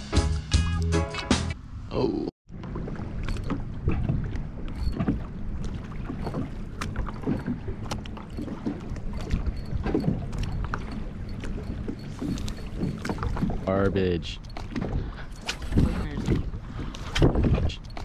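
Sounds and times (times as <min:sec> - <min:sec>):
waves slapping kayak hull: 0:02.5 - 0:18.0
wind noise: 0:14.8 - 0:17.8.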